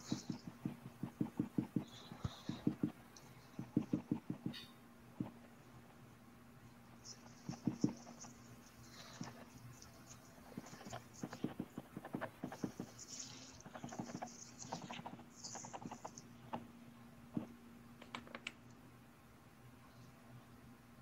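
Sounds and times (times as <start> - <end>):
light taps and clicks: 0.0 - 5.4
faint steady hum: 0.0 - 21.0.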